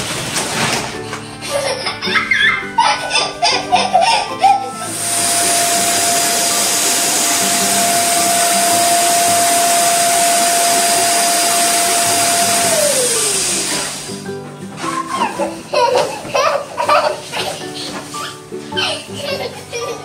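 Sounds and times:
electric balloon pump whining: 3.8 - 15.6.

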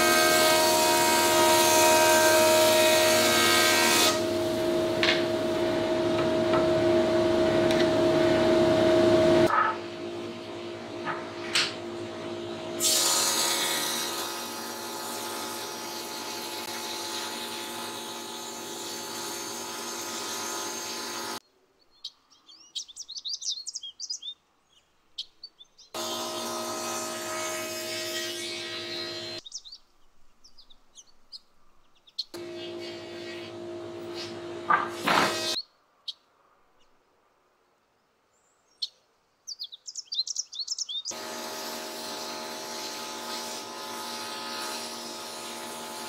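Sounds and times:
jointer planer humming: 0.0 - 21.3, 26.0 - 29.4, 32.4 - 35.6
board cutting rush: 0.0 - 21.4, 26.0 - 29.4, 32.4 - 35.6, 41.2 - 46.0
birds chirping: 21.5 - 26.5, 29.4 - 34.5, 38.3 - 41.2.

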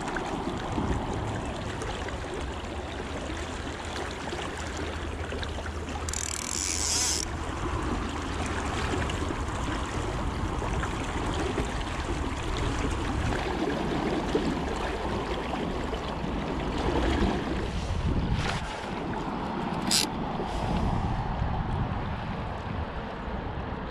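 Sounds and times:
river water rushing: 18.6 - 20.6.

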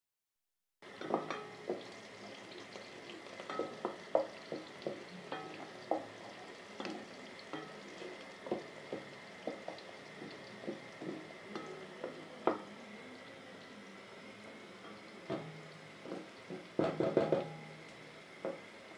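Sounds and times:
stirring knocks and scrapes in pot: 0.8 - 12.7, 14.8 - 17.8, 18.4 - 18.7
meat sizzling in oil: 0.8 - 18.9.

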